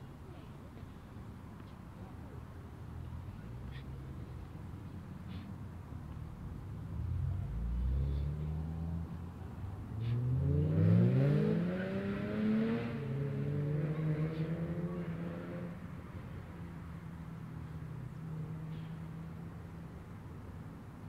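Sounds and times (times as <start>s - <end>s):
car engine accelerating past: 7.0s - 9.2s, 10.0s - 16.0s.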